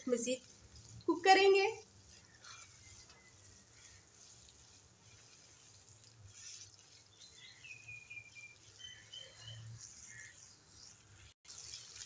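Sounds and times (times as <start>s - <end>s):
butter sizzling in a frying pan: 0.0s - 12.0s
faint high chirps: 7.1s - 10.5s.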